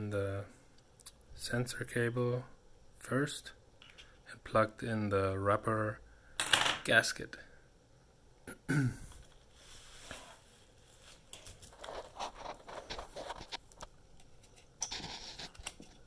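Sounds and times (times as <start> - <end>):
hands handling plastic parts: 11.1 - 16.0.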